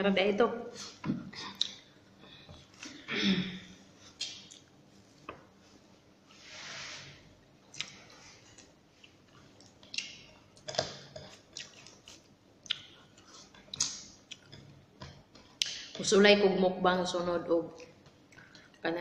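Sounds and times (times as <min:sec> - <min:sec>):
person chewing: 0:00.8 - 0:01.8, 0:04.1 - 0:04.8, 0:07.7 - 0:15.9.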